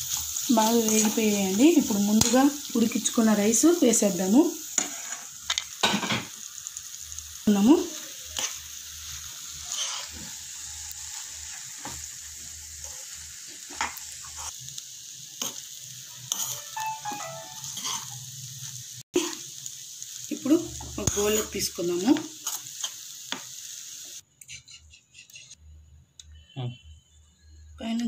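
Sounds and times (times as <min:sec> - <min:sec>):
food sizzling: 0:00.0 - 0:24.7
spoon scraping a pan: 0:04.7 - 0:05.6, 0:09.6 - 0:10.4, 0:16.3 - 0:16.8, 0:24.4 - 0:25.6.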